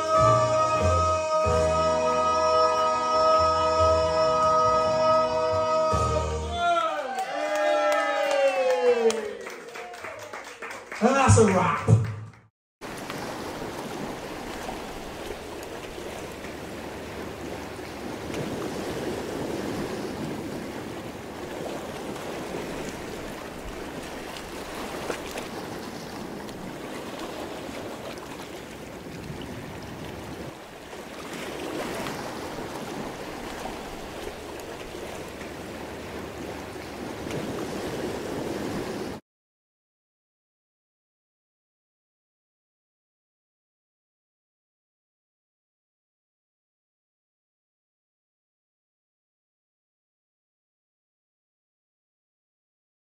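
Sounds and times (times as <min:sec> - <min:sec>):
sea waves washing in: 0:12.8 - 0:39.2.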